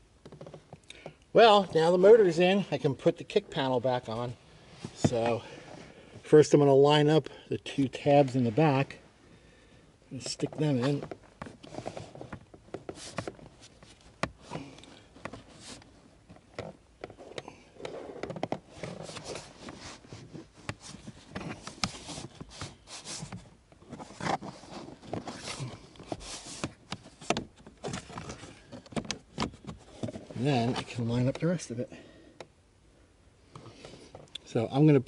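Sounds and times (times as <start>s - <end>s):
plastic panel clicking and scraping: 16.4s - 31.5s.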